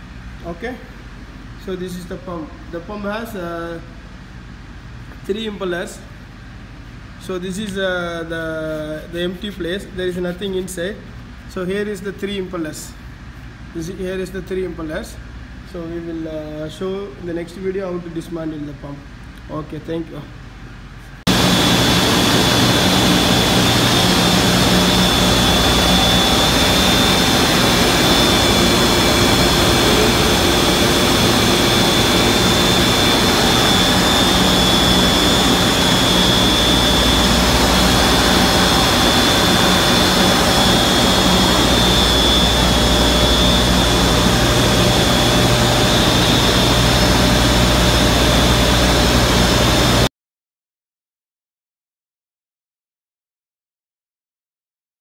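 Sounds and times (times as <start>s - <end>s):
electric motor and pump whining: 21.3s - 50.1s.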